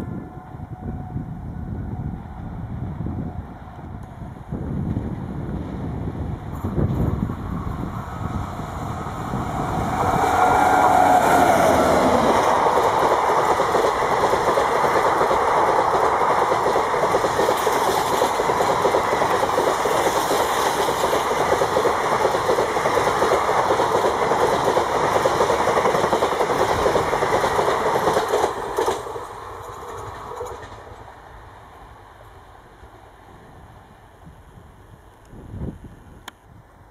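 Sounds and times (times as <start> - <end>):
train horn: 0.0 - 2.3, 9.4 - 12.4
locomotive passing: 0.0 - 34.2
train wheels on rail: 0.0 - 36.4.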